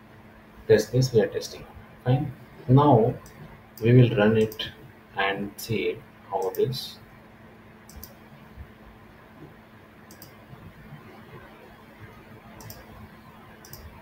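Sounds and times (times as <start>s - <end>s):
faint steady hum: 0.0s - 14.0s
computer mouse clicking: 3.2s - 4.7s, 7.9s - 8.2s, 10.1s - 10.7s, 12.6s - 13.0s, 13.6s - 14.0s.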